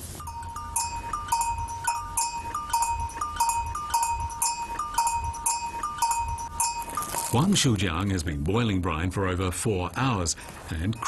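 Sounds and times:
goat bells clanking: 0.0s - 7.8s.

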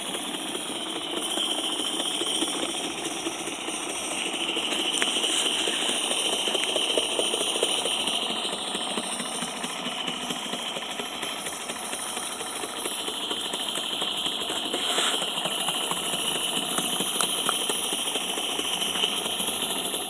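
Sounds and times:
model steam locomotive running: 0.0s - 20.0s
steady steam hiss: 0.0s - 20.0s.

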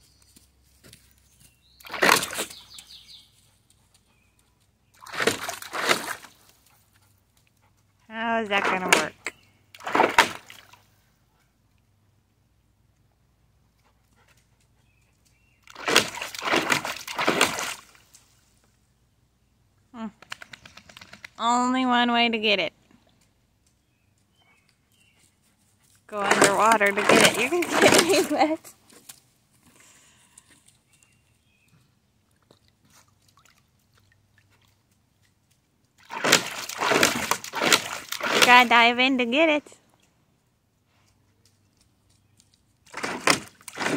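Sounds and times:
dog splashing water: 1.8s - 3.0s, 5.0s - 6.4s, 8.5s - 10.8s, 15.6s - 18.0s, 26.1s - 28.6s, 32.3s - 38.8s, 42.8s - 43.9s.

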